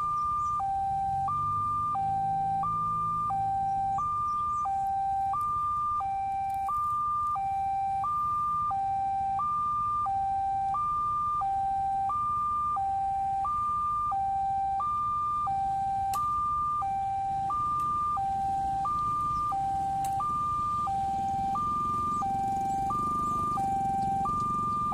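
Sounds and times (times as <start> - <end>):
level crossing two-tone alarm: 0.0 - 24.9.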